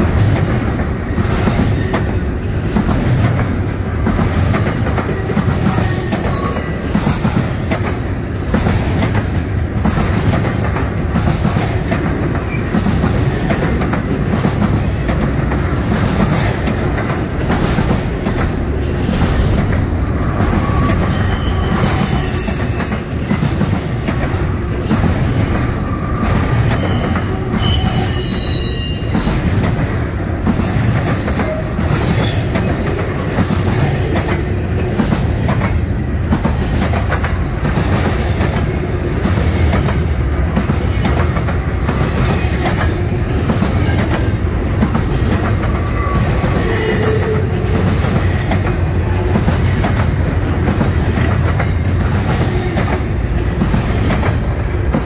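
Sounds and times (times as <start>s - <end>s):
rail clacks: 0.0s - 55.0s
steel wheels rumbling on rail: 0.0s - 55.0s
wheel squeals: 20.4s - 23.3s, 25.7s - 29.5s.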